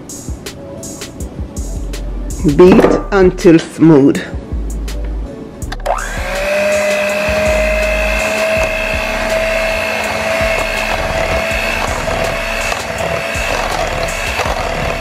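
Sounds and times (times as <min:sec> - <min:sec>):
electric hand mixer running: 0:05.8 - 0:15.0.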